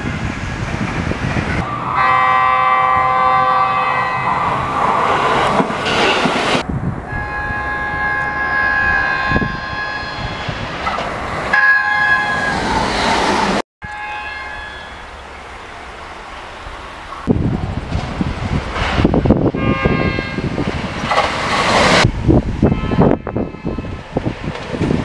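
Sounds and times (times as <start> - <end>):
train wheels rumbling on rail: 0.0 - 13.6, 15.1 - 25.0
train horn blasts: 1.9 - 4.5, 7.1 - 10.6, 11.5 - 12.7, 13.8 - 15.2, 19.5 - 20.5, 22.6 - 24.0.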